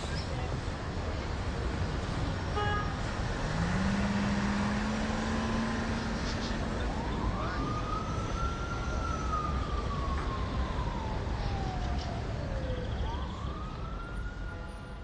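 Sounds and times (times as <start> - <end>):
low rumble of city traffic: 0.0 - 15.0
emergency vehicle siren wailing: 3.4 - 15.0.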